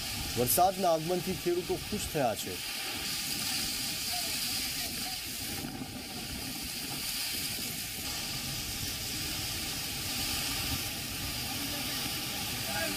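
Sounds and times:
heavy rain: 0:00.0 - 0:12.9
wind buffeting microphone: 0:02.6 - 0:12.9.

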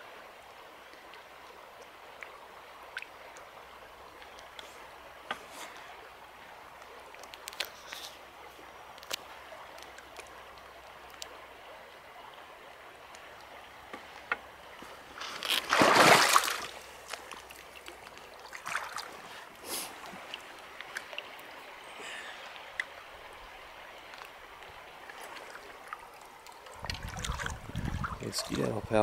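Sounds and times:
stream running over stones: 0:00.0 - 0:29.0
small ticks: 0:06.8 - 0:08.2, 0:08.9 - 0:10.4
loud splashing: 0:15.6 - 0:16.8.

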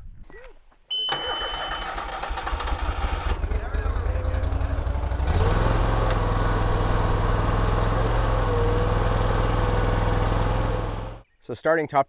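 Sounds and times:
skid steer engine running: 0:02.4 - 0:11.2.

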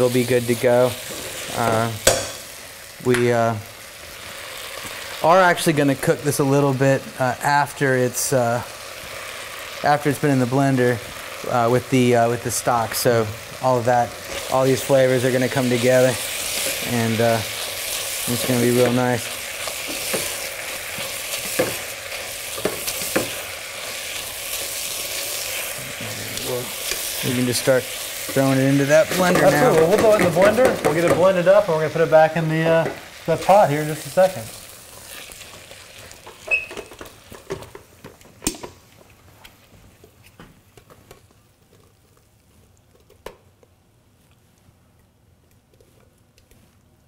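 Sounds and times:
vegetables sizzling in a pot: 0:00.0 - 0:43.5
spatula stirring and scraping: 0:12.9 - 0:32.1.

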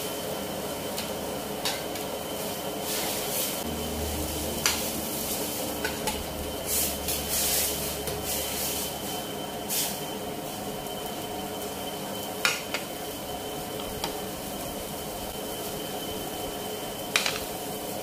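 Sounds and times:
gas burner: 0:00.0 - 0:18.0
water boiling in wok: 0:00.0 - 0:18.0.

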